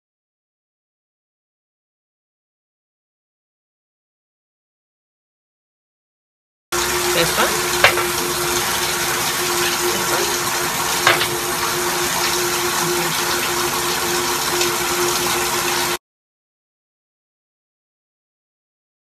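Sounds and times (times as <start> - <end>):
constant hum: 6.8 - 15.5.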